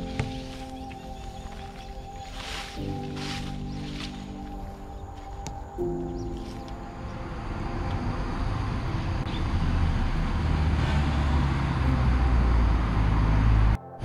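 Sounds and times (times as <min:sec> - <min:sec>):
cars passing on road: 0:06.4 - 0:13.8.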